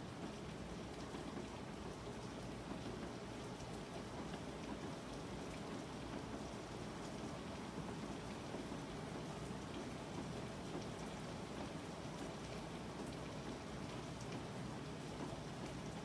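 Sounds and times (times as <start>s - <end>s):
steady rain: 0.0s - 16.0s.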